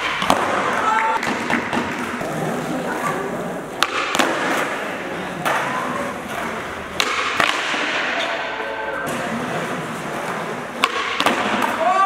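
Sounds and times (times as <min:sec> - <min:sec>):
skateboard rolling on smooth floor: 0:00.0 - 0:07.0, 0:07.6 - 0:12.0.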